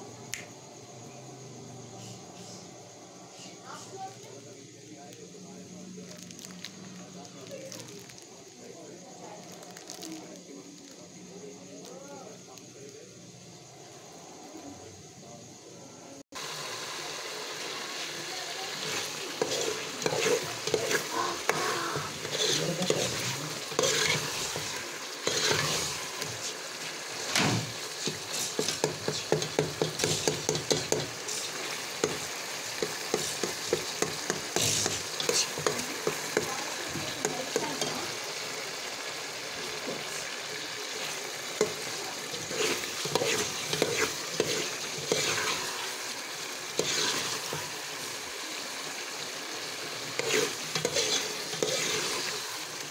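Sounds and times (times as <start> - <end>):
curry sizzling and bubbling: 0.0 - 52.9
metal ladle scraping a pot: 19.4 - 26.5, 46.8 - 47.5, 50.2 - 52.3.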